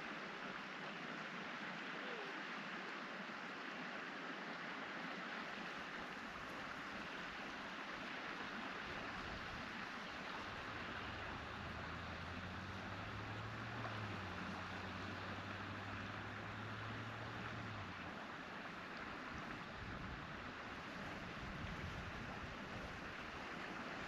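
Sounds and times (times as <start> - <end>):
river water rushing: 0.0 - 24.0
low steady hum: 5.9 - 24.0.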